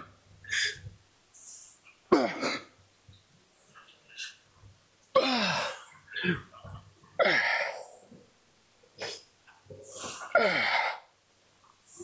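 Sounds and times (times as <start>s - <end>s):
quiet breaths: 0.0s - 2.1s, 3.0s - 12.0s
man grunting: 10.2s - 11.0s.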